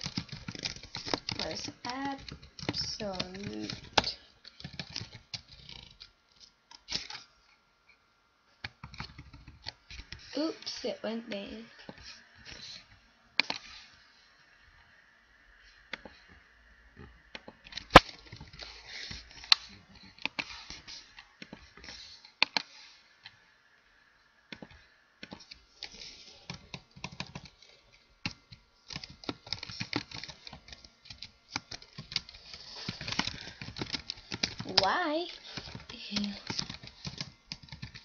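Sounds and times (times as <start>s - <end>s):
computer keyboard typing: 0.0s - 6.1s, 8.6s - 10.2s, 24.5s - 38.0s.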